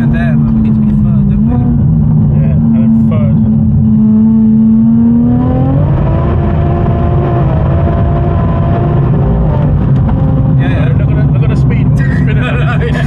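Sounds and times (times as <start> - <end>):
car engine drone from inside cabin: 0.0 - 13.0
road rumble: 0.0 - 13.0.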